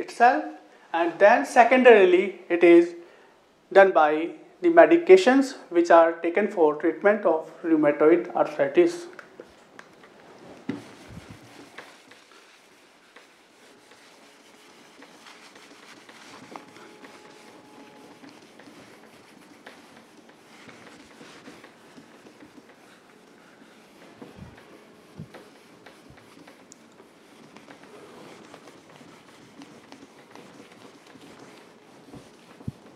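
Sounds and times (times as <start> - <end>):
whiteboard eraser rubbing: 10.4 - 32.9.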